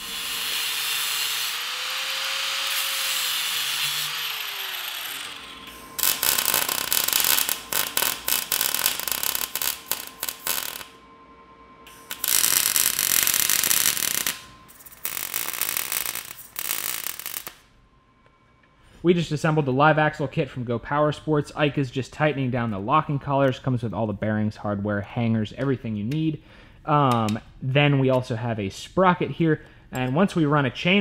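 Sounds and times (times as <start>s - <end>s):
angle grinder cutting steel: 0.0s - 11.0s, 11.9s - 17.6s
welder crackling: 0.0s - 11.0s, 11.9s - 17.7s.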